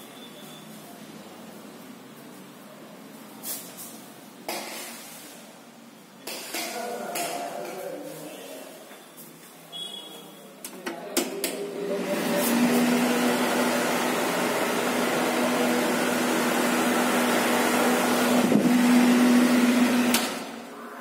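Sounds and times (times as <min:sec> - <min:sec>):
electric fan running: 0:11.2 - 0:20.7.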